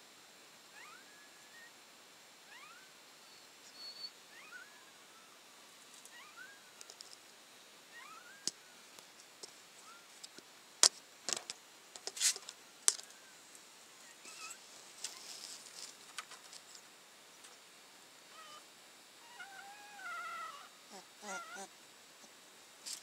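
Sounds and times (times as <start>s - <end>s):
puppies squeaking: 8.0s - 8.4s, 14.2s - 15.3s, 19.3s - 21.7s.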